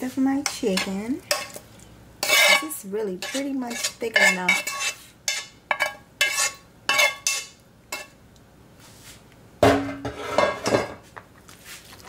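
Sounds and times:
metal spoon scraping a bowl: 0.4s - 1.6s, 2.2s - 8.1s, 10.0s - 10.7s.

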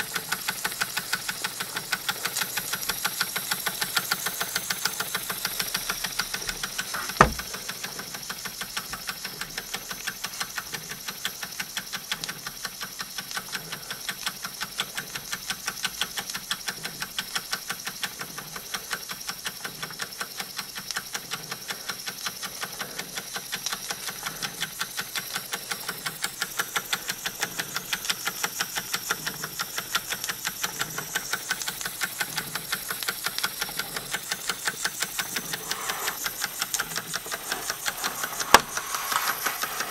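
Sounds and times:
steam hissing: 0.0s - 10.5s, 21.9s - 39.9s
toy steam engine ticking: 0.0s - 39.9s
sharp click: 35.1s - 39.9s.

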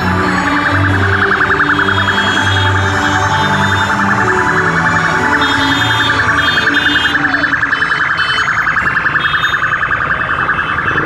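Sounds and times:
high trilling alarm tone: 0.1s - 11.0s.

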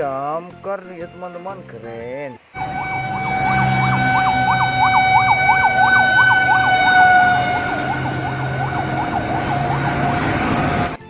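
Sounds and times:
fire truck siren yelp: 2.6s - 11.0s.

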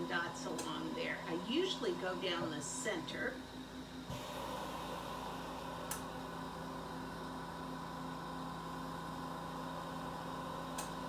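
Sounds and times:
equipment hum: 0.0s - 11.0s
torch flame hissing: 4.1s - 6.3s.

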